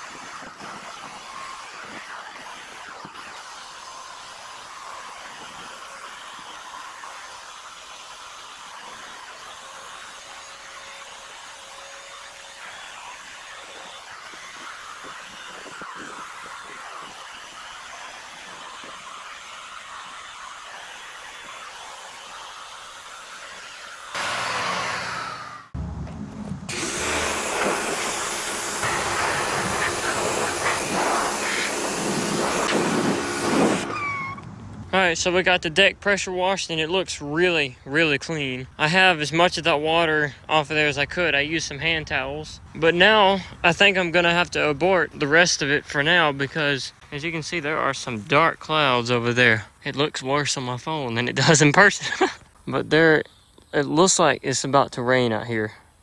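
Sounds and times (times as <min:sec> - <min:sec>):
wire brush scrubbing metal: 0:00.0 - 0:25.7, 0:26.7 - 0:34.3
pressure washer spraying metal: 0:00.0 - 0:25.8, 0:26.7 - 0:34.4.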